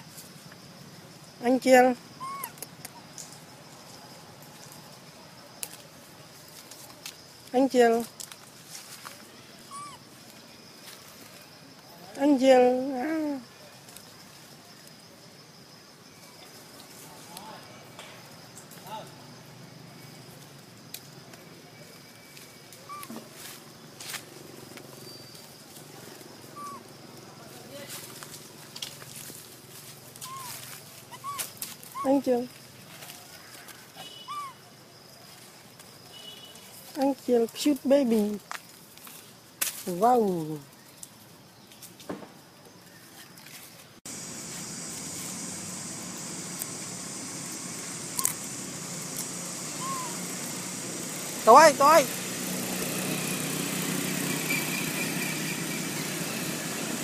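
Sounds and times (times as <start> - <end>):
outdoor background hum: 38.1 - 57.0
high hiss: 44.1 - 57.0.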